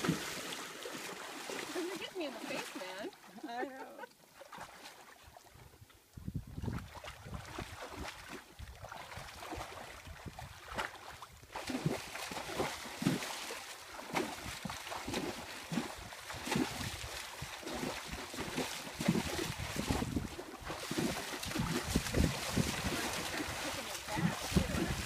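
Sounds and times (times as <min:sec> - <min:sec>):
horse hoof splashing water: 0:00.0 - 0:25.0.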